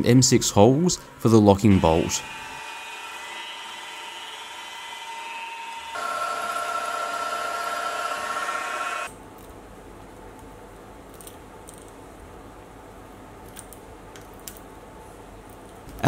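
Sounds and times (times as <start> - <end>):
drill bit whining into metal: 1.6 - 9.1.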